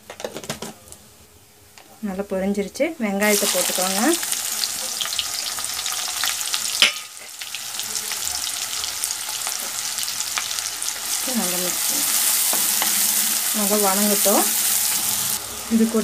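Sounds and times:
onions sizzling in hot oil: 3.2s - 16.0s.

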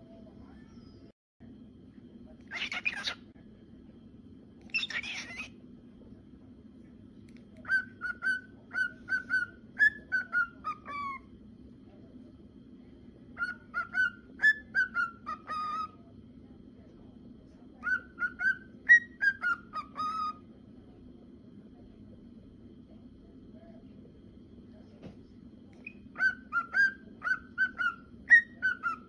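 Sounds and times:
cockatiel whistling: 4.7s - 5.6s, 7.6s - 11.3s, 13.4s - 16.0s, 17.8s - 20.4s, 25.8s - 29.0s.

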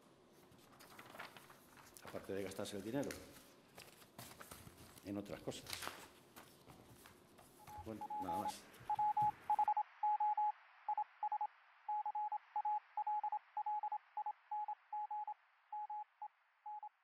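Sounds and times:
faint radio-like hiss: 0.0s - 14.6s
short electronic beeps: 7.6s - 17.0s.

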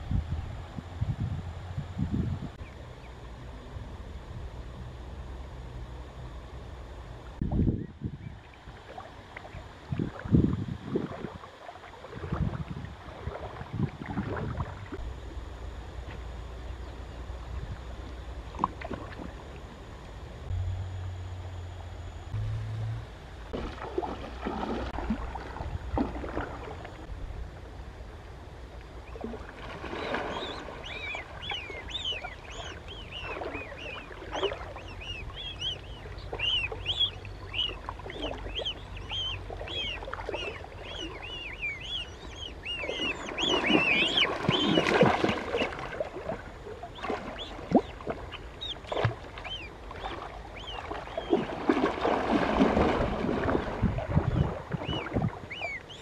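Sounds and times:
waterfowl chick peeping: 29.8s - 45.9s, 46.8s - 56.0s.

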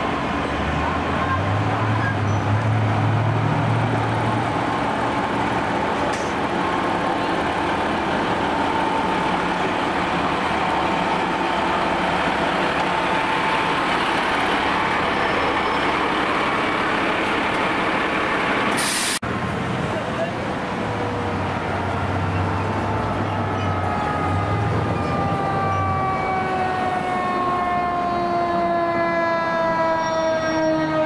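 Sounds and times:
diesel truck engine driving past: 0.0s - 31.0s
short high hiss: 18.8s - 19.2s.

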